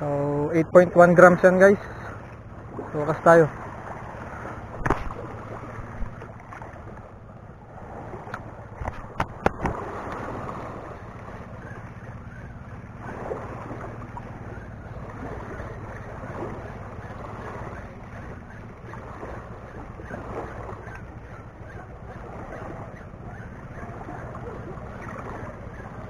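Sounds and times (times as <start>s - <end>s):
steady low hum: 0.0s - 26.0s
waves washing against seawall: 7.7s - 26.0s
sharp clicks and knocks: 8.3s - 9.8s.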